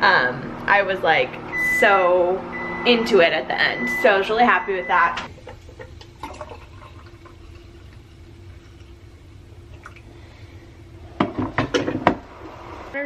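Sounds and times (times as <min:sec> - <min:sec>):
steady low hum: 0:00.0 - 0:13.0
coffee pouring into glass mug: 0:05.4 - 0:10.1.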